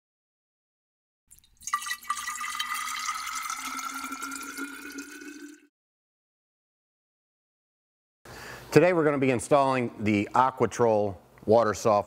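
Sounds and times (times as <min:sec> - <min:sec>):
water drips splashing: 0:01.3 - 0:05.7
water pouring into a vessel: 0:01.3 - 0:05.7.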